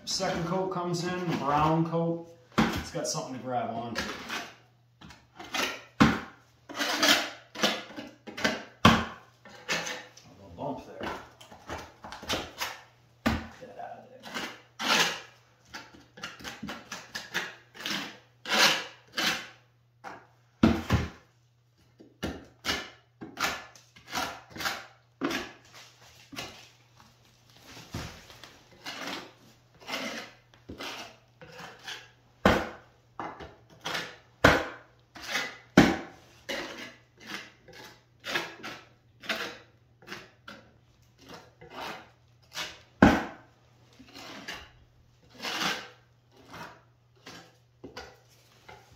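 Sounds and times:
trowel scraping plaster: 0:03.2 - 0:08.8, 0:09.4 - 0:10.2, 0:13.5 - 0:19.7, 0:22.0 - 0:26.8, 0:27.6 - 0:32.8, 0:33.4 - 0:48.9.

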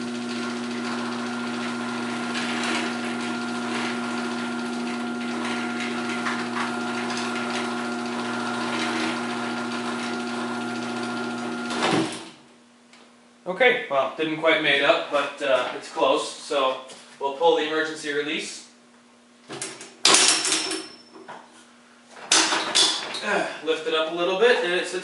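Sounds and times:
garage door opener motor hum: 0:00.0 - 0:12.4.

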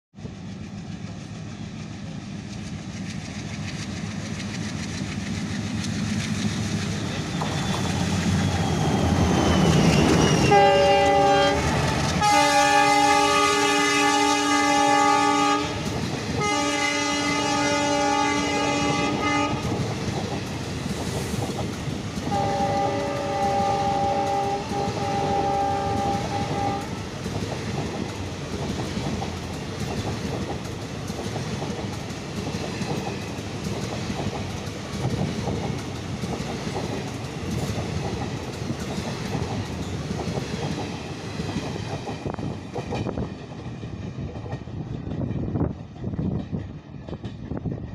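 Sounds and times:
train wheel clatter: 0:00.2 - 0:47.9
locomotive horn blasts: 0:10.4 - 0:19.8, 0:22.3 - 0:26.9.

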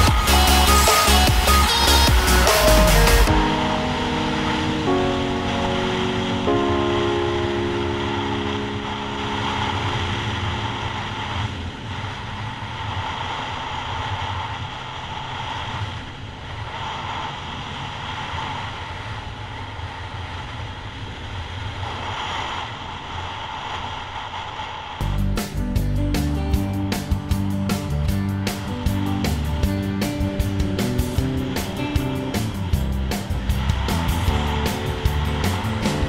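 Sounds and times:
strummed guitar music: 0:00.0 - 0:11.3, 0:25.0 - 0:36.0
motorcycle engine running: 0:00.0 - 0:15.2, 0:25.0 - 0:36.0
wind rushing over microphone: 0:03.2 - 0:25.1.

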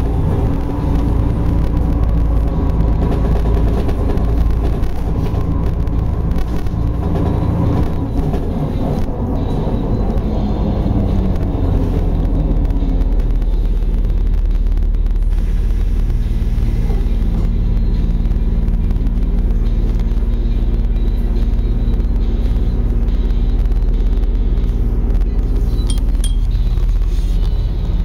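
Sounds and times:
car engine and tyre rumble: 0:00.0 - 0:28.0.

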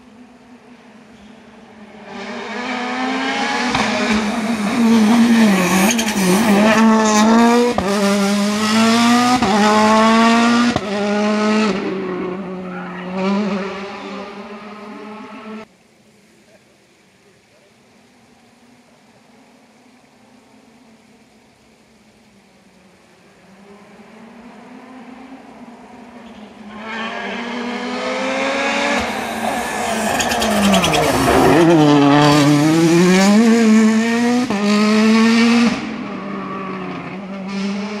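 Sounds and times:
rally car engine revving: 0:02.0 - 0:15.6, 0:26.0 - 0:38.0
exhaust crackle: 0:21.6 - 0:34.8.

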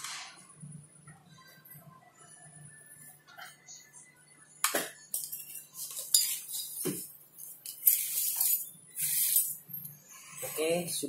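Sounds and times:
metal parts clinking and rattling: 0:07.4 - 0:09.7.

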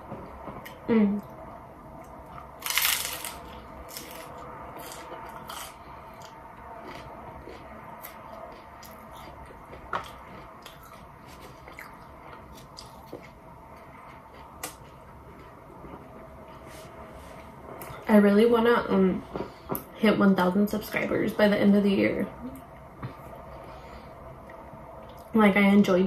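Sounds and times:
chewing with crisp crackles: 0:02.0 - 0:16.6
crunchy taco bite: 0:02.6 - 0:13.3.

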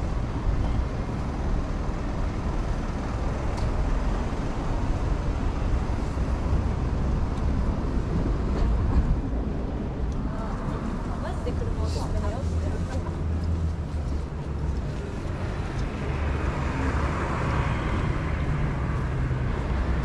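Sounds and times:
city street traffic rumble: 0:00.0 - 0:20.0.

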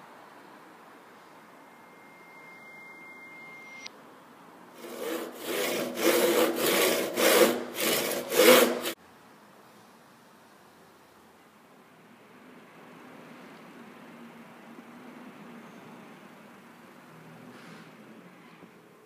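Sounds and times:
handsaw cutting wood: 0:04.8 - 0:09.0.

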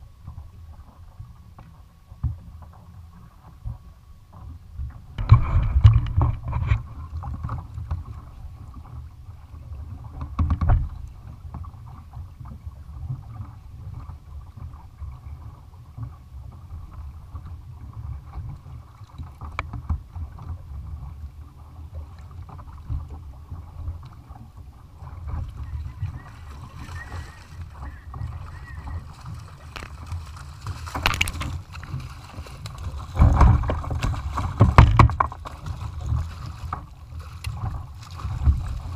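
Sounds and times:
water lapping against kayak: 0:00.0 - 0:38.9
wind on microphone: 0:04.7 - 0:09.0, 0:22.7 - 0:36.8, 0:37.4 - 0:38.9
fish splashing: 0:25.2 - 0:38.9
knocks on kayak: 0:33.2 - 0:35.4.

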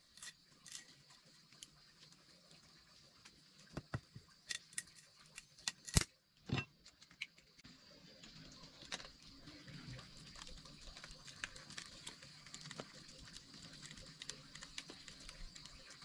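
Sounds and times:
objects clicking and knocking: 0:00.0 - 0:01.8, 0:03.7 - 0:07.6.

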